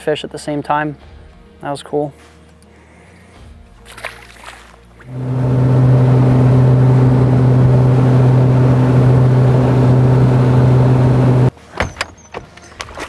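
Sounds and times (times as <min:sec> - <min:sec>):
outboard motor running: 0:05.0 - 0:11.5.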